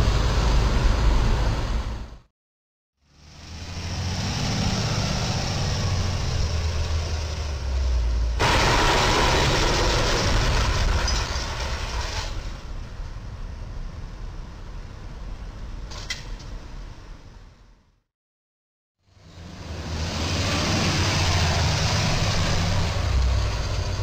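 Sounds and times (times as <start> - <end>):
truck engine: 0.0 - 2.2, 3.1 - 13.3, 19.2 - 24.0
traffic hum: 0.0 - 2.3, 3.1 - 17.9, 19.2 - 24.0.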